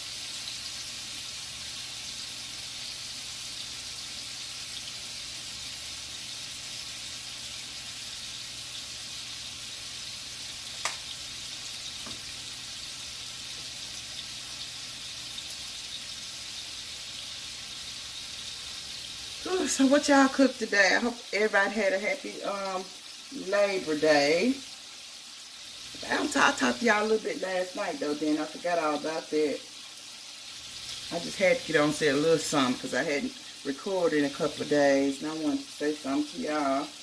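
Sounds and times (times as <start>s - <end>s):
food sizzling in grease: 0.0s - 37.0s.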